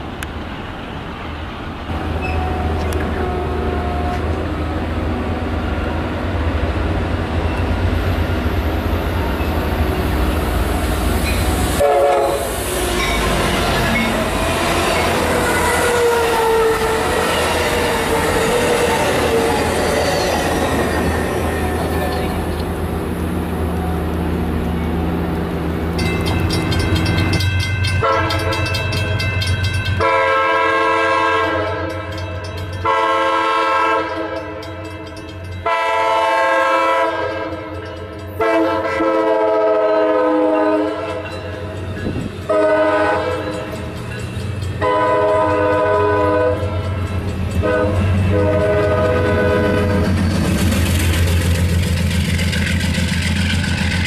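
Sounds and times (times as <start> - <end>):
locomotive horn blasts: 1.9 - 4.6, 11.7 - 13.5, 14.2 - 17.6, 28.0 - 28.8, 30.0 - 32.2, 32.8 - 34.6, 35.6 - 37.8, 38.4 - 41.3, 42.5 - 43.7, 44.8 - 46.9, 47.6 - 50.1.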